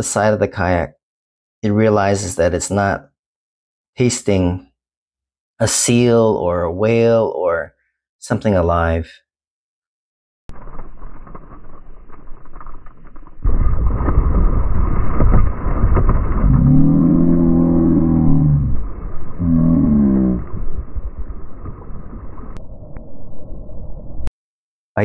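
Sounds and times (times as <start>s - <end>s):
water splashing and churning: 10.5s - 22.6s.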